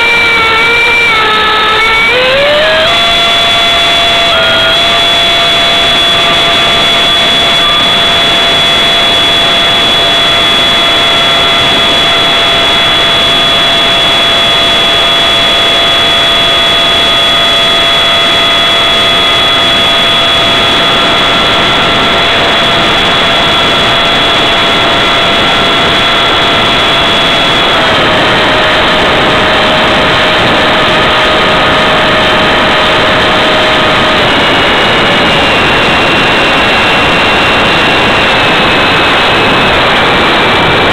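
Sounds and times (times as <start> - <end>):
electric fan whine: 0.0 - 40.9.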